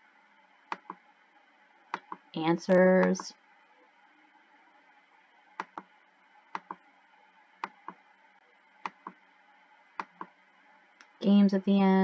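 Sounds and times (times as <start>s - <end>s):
faint room hiss: 0.0s - 12.0s
computer mouse clicks: 0.7s - 1.0s, 1.9s - 2.3s, 5.6s - 5.9s, 6.5s - 6.8s, 7.6s - 8.0s, 8.8s - 9.2s, 10.0s - 10.3s.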